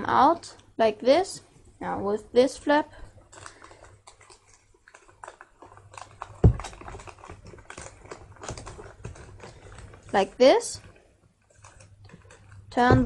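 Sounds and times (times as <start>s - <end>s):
paper crinkling: 2.4s - 12.9s
dull thump: 12.8s - 13.0s.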